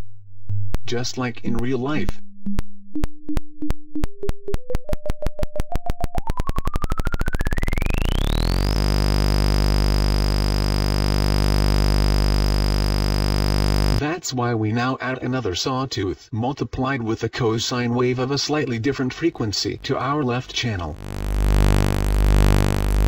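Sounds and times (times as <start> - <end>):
ticking pulse turning into buzz: 0.5 - 14.0, 18.7 - 23.0
tone rising into high whistle: 5.6 - 8.6.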